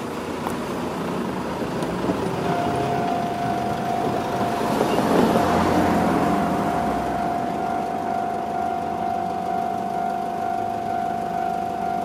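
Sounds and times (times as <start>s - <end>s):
vehicles driving past: 0.0s - 12.0s
level crossing alarm ringing: 2.4s - 12.0s.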